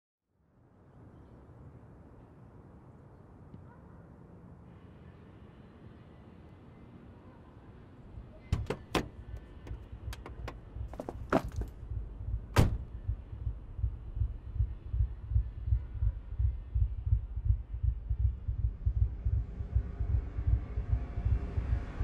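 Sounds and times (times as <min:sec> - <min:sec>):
car door slamming shut: 0:08.5 - 0:09.4, 0:12.5 - 0:12.9
low thudding pulse: 0:11.8 - 0:22.0.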